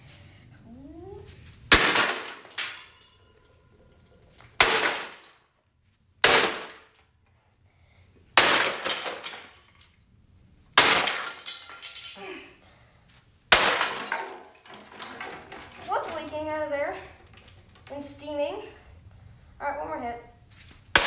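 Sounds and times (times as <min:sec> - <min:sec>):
sledgehammer smashing plastic: 0:01.7 - 0:02.9, 0:04.6 - 0:05.4, 0:06.2 - 0:06.9, 0:08.4 - 0:09.7, 0:10.8 - 0:12.2, 0:13.5 - 0:16.2
breaking parts clattering: 0:01.7 - 0:05.4, 0:08.4 - 0:10.0, 0:10.8 - 0:12.3, 0:13.6 - 0:17.9.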